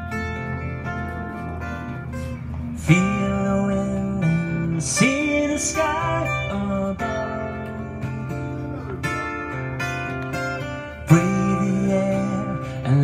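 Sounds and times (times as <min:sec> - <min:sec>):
acoustic guitar: 0:00.0 - 0:13.0
man singing: 0:02.8 - 0:07.9, 0:11.0 - 0:13.0.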